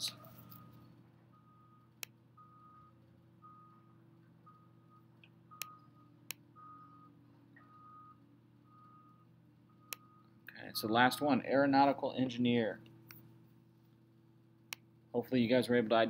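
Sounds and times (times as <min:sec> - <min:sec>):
faint steady hum: 0:00.0 - 0:16.0
soft high beep: 0:01.4 - 0:10.4.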